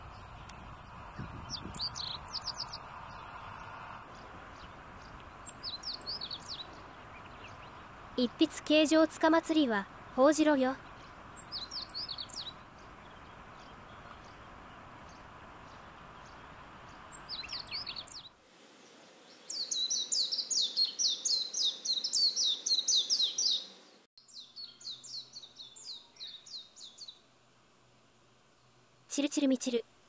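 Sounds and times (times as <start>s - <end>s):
bird twittering song: 1.2s - 2.9s, 4.1s - 7.9s, 10.8s - 18.3s, 19.4s - 27.2s.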